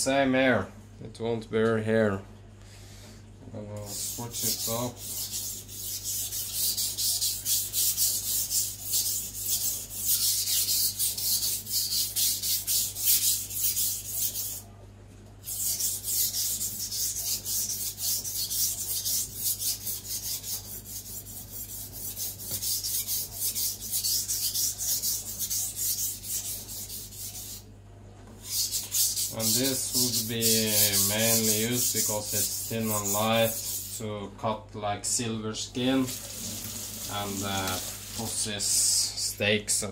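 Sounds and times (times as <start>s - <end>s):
knife scraping on whetstone: 3.9s - 14.6s, 15.4s - 27.6s, 28.4s - 34.0s.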